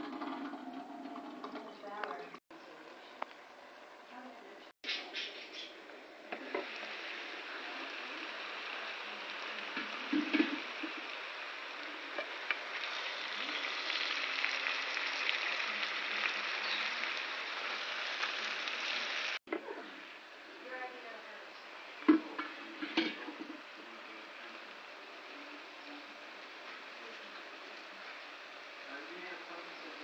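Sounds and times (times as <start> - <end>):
food sizzling in skillet: 6.3 - 19.4, 20.0 - 30.0.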